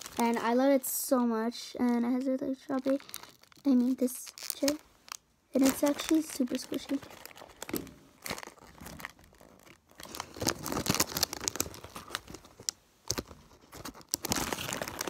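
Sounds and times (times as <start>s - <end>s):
plastic bag crinkling: 0.0s - 15.0s.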